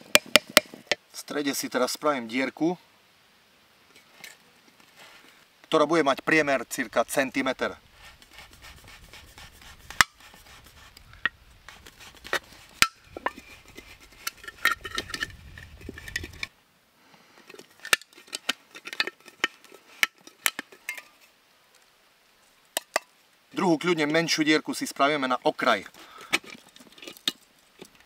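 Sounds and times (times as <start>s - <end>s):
metallic clicks and scrapes: 8.1s - 16.5s, 17.4s - 21.3s, 25.9s - 28.0s.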